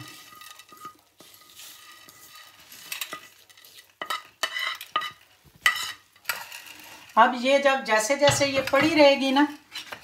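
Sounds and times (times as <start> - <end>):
lentils clattering into dish: 0.0 - 7.2
spoon scraping lentils on paper: 0.0 - 7.3.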